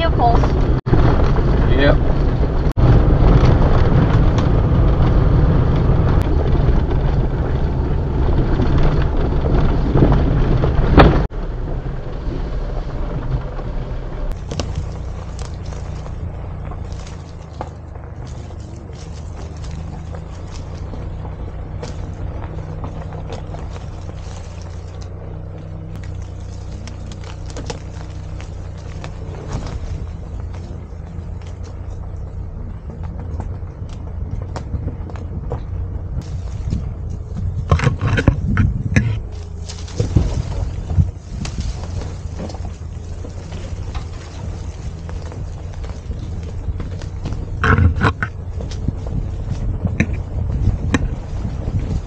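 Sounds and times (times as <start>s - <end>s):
engine and tyre rumble: 0.0s - 52.0s.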